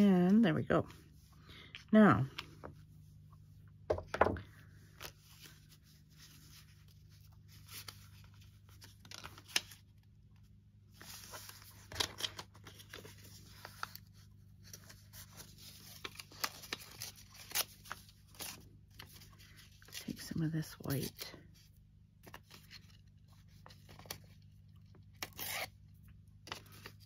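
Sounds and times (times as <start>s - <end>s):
paper rustling: 10.9s - 20.2s.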